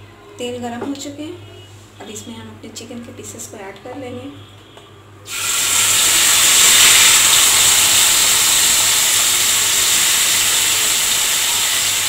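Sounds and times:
chicken sizzling in hot oil: 5.3s - 12.0s.

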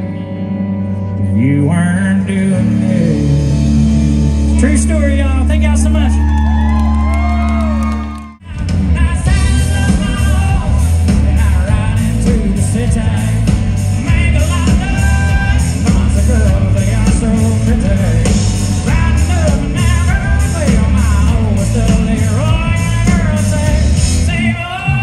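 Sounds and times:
live rock band playing: 0.0s - 25.0s
man singing: 1.1s - 5.9s, 8.4s - 25.0s.

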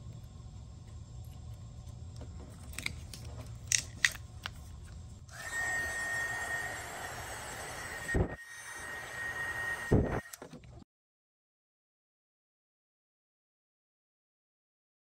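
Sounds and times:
heat gun hissing with fan whine: 5.3s - 10.4s.

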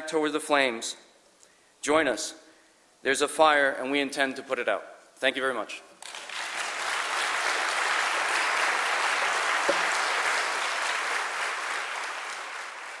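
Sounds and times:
audience applauding: 6.0s - 13.0s.

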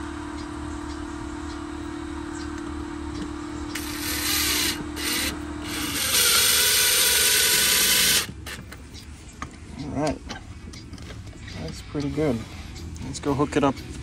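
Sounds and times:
cordless drill driving screws: 3.7s - 8.6s.

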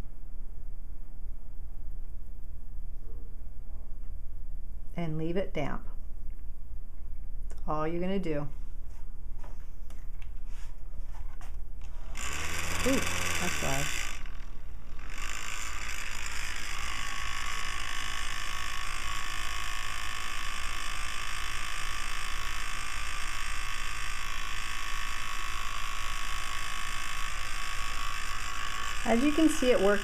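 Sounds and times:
electric fan motor buzzing: 10.0s - 30.0s.

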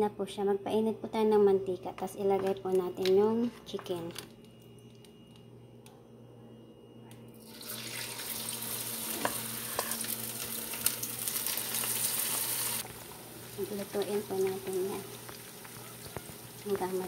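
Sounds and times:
oil sizzling in frying pan: 7.4s - 17.0s.

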